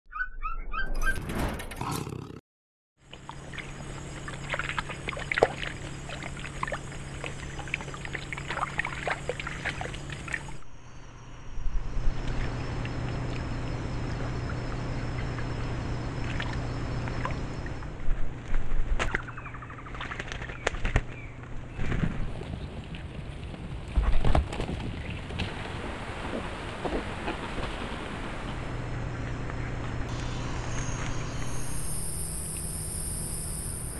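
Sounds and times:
bird chirps: 0.1s - 1.2s
water splashing and sloshing: 3.0s - 10.7s, 12.1s - 30.1s
steady hum: 3.2s - 22.4s, 25.5s - 33.9s.

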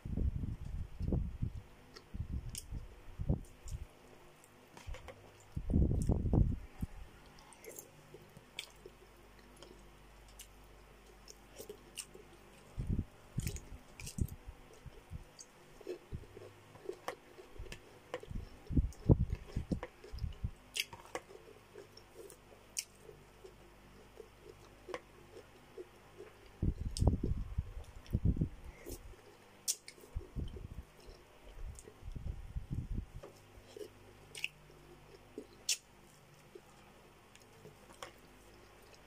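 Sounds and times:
wet chewing sounds: 0.4s - 39.0s
sharp mouth clicks: 35.6s - 35.9s.

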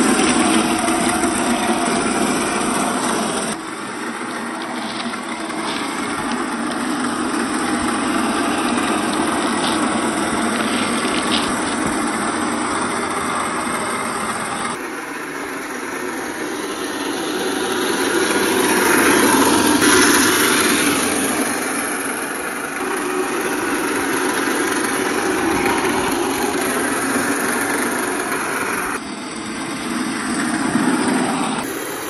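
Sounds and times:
toy car electric motor and gears: 0.0s - 32.0s.

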